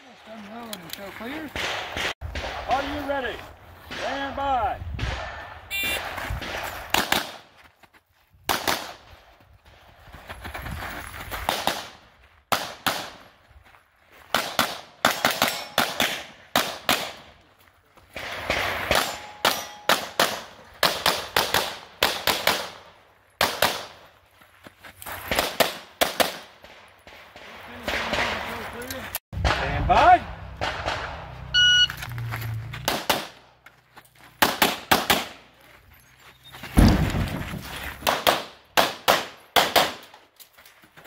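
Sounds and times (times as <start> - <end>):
rapid pistol fire: 30.6 - 31.2
shot timer beep: 31.5 - 32.0.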